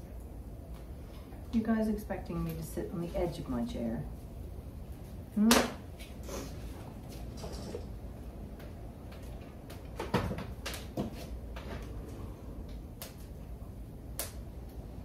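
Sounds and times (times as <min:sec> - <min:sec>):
low steady rumble: 0:00.0 - 0:10.0.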